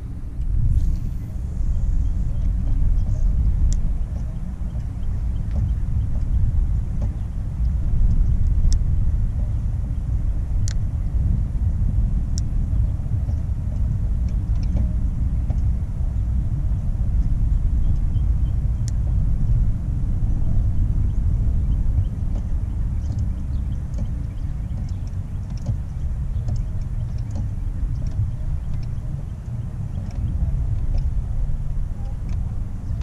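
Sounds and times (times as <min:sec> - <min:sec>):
wind buffeting microphone: 0:00.0 - 0:33.0
sharp ticks: 0:21.1 - 0:33.0.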